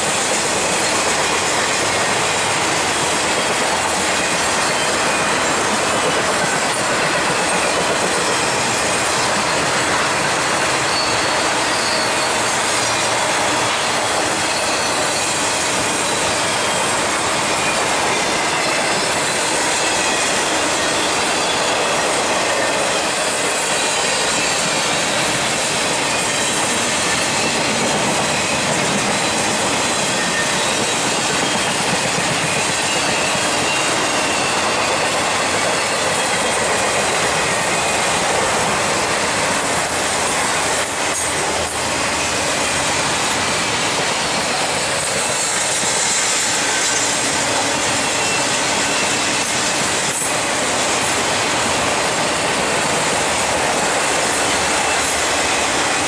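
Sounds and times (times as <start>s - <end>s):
train wheels rolling on rails: 0.0s - 56.0s
faint wheel squeal: 10.8s - 12.9s.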